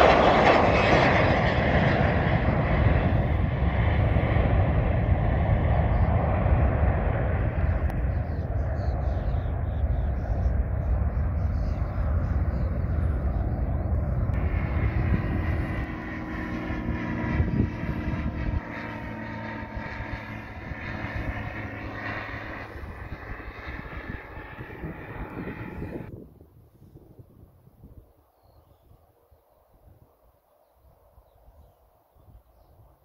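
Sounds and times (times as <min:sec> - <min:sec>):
jet engines rumbling: 0:00.0 - 0:26.2
propeller plane engine droning: 0:00.0 - 0:33.0.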